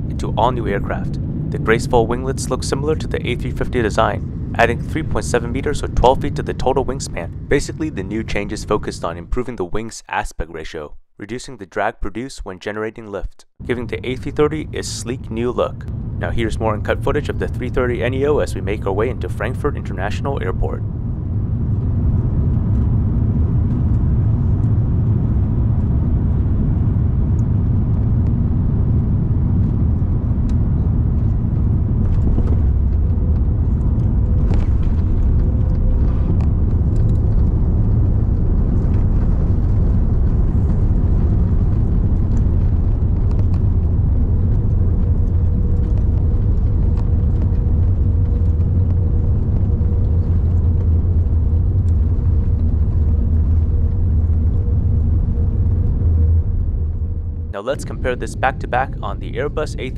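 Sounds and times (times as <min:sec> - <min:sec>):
aircraft cabin engine rumble: 0:00.0 - 0:10.9, 0:13.5 - 0:59.9
wheels rolling on runway: 0:21.2 - 0:57.3.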